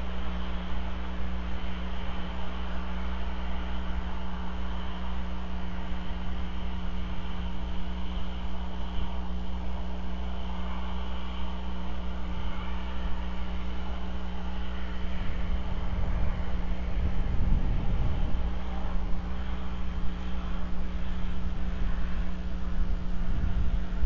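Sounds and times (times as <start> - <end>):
electrical hum: 0.0 - 24.0
outdoor background rumble: 0.0 - 24.0
deep rumble: 15.0 - 24.0.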